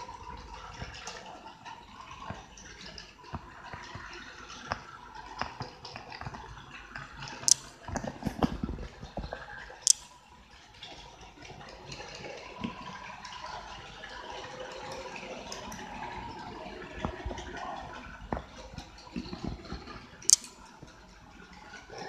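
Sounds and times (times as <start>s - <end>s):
light clicks: 20.2s - 20.8s.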